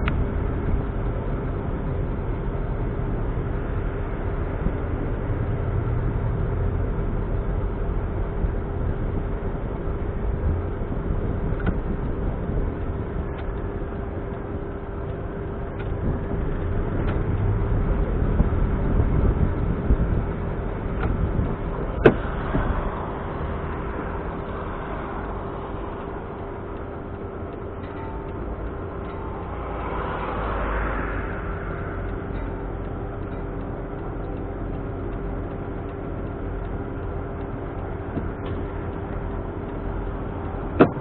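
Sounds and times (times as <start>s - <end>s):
car engine running: 0.0s - 41.0s
road noise: 0.0s - 41.0s
steady whine: 0.0s - 41.0s
light ticks: 23.8s - 41.0s.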